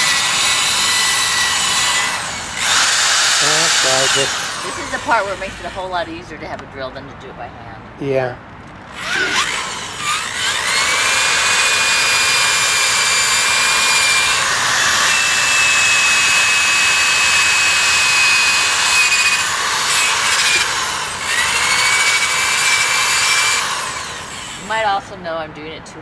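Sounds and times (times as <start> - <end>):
electric drill motor whine: 0.0 - 6.0, 8.9 - 25.0
polishing pad hissing on rim: 3.1 - 5.7.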